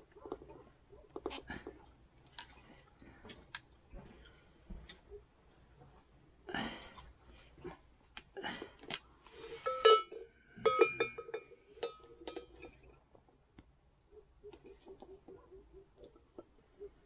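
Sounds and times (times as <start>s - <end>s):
metal bell clanking: 9.6s - 12.9s.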